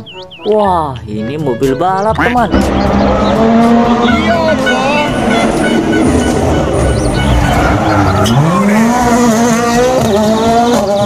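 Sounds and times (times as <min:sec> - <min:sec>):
rally car engine revving: 0:02.2 - 0:11.0.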